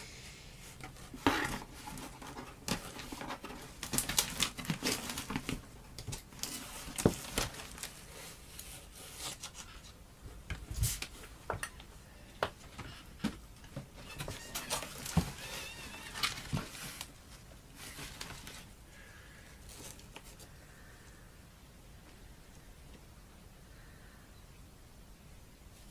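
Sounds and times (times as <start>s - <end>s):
cardboard box being unpacked: 0.9s - 9.7s, 14.0s - 18.7s.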